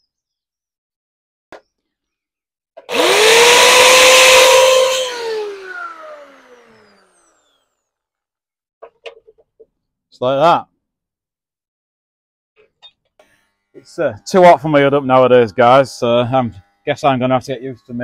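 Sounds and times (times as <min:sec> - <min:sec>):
electric grinder grinding steel: 0:02.8 - 0:07.9, 0:13.0 - 0:18.0.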